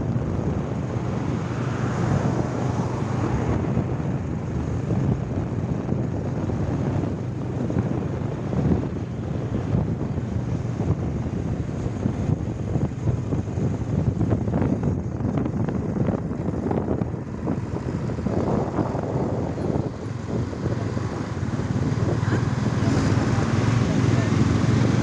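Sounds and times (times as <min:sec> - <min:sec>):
road noise: 0:00.0 - 0:25.0
wind rushing over microphone: 0:00.0 - 0:25.0
motorcycle engine running: 0:03.7 - 0:25.0.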